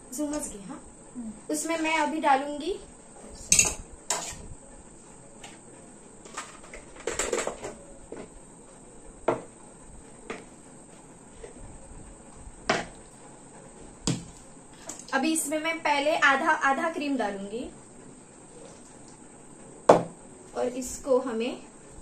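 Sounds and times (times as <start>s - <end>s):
utensils and bowls clinking: 3.5s - 4.4s.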